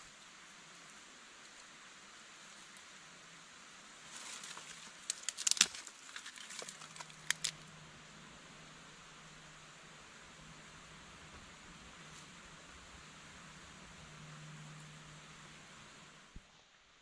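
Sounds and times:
twigs rustling: 4.0 - 7.7
dry twigs snapping: 4.2 - 7.6.

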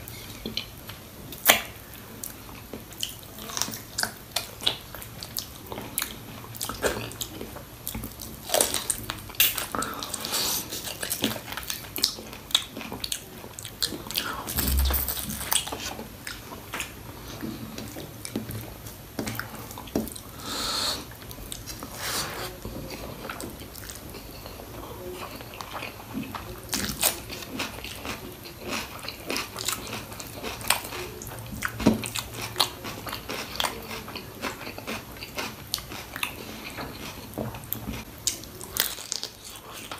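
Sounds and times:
wet chewing and smacking: 1.3 - 20.2, 25.2 - 39.9
dull low thump: 14.6 - 15.6.

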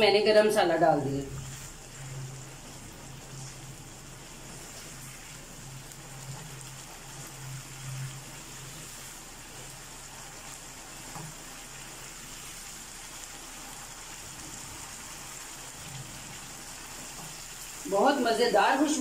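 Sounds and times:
masala sizzling in oil: 0.0 - 19.0.

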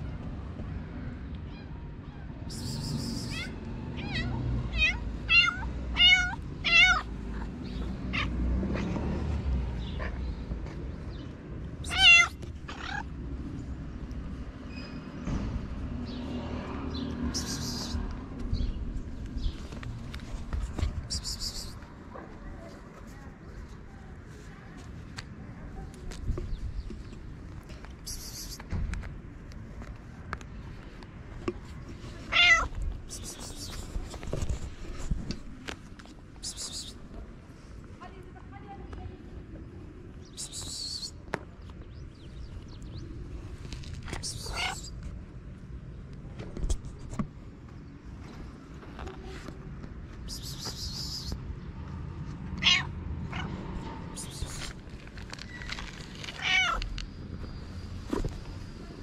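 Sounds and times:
cat meowing: 3.2 - 7.1, 11.8 - 13.1, 32.3 - 32.7, 44.3 - 44.9, 52.6 - 53.5, 56.3 - 56.9.

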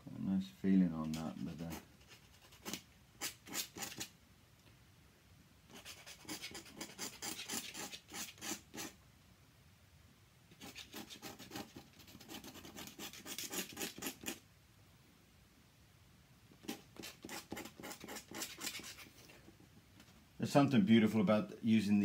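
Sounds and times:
pen nib scratching paper: 1.2 - 4.1, 5.7 - 9.0, 10.5 - 14.4, 16.6 - 19.6.

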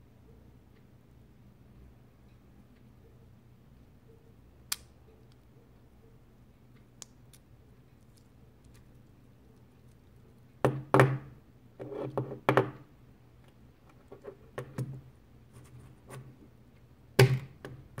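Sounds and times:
fidget spinner knocking on wooden desk: 10.6 - 12.8.

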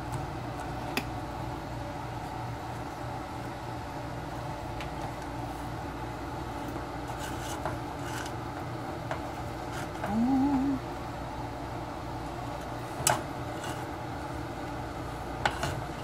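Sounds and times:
wooden spoon scraping a pot: 7.0 - 8.4
person humming: 10.0 - 10.9.

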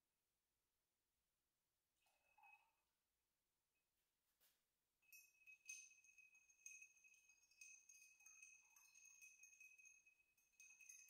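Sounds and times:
glass ringing high tone: 5.1 - 11.0
spoon clinking in mixing glass: 5.1 - 11.0.

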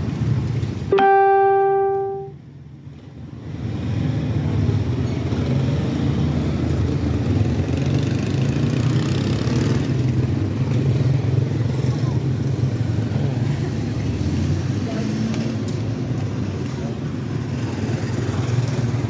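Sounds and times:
street traffic noise: 0.0 - 19.0
horn-like beep: 0.9 - 2.3
motorcycle engines running: 3.0 - 19.0.

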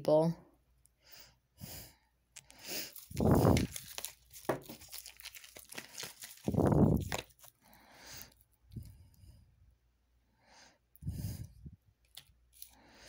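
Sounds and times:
cards rustling: 2.4 - 8.4, 12.1 - 12.8
cards tapping: 3.5 - 5.1.

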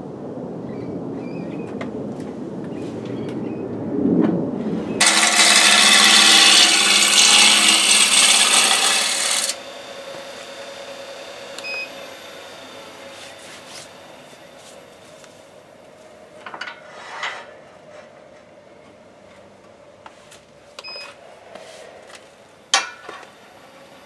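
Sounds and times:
faint steady whine: 4.6 - 24.0
gouge rasping on lathe wood: 5.0 - 9.6
low lathe rumble: 5.0 - 13.0.

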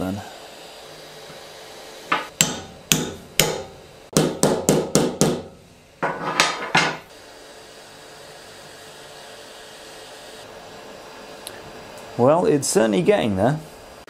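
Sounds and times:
hammer striking steel bar: 2.1 - 7.0.

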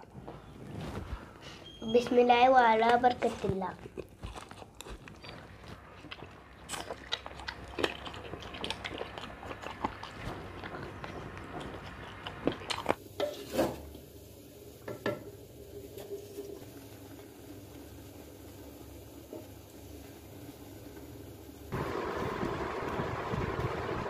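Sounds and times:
chewing and eating: 2.8 - 13.0.

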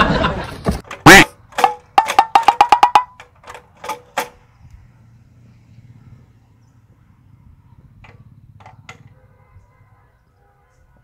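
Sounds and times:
sharp percussive knocks: 1.1 - 3.3.

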